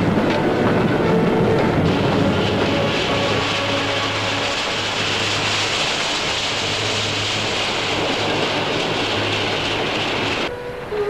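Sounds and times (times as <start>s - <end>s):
steam train hissing: 0.0s - 11.0s.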